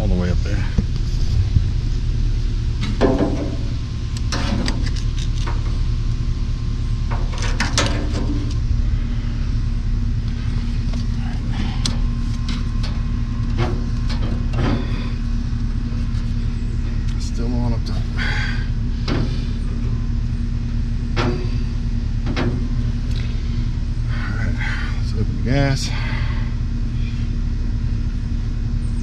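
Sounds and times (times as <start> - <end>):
steady low rumble: 0.0 - 29.0
metal clicks and knocks: 7.1 - 8.6.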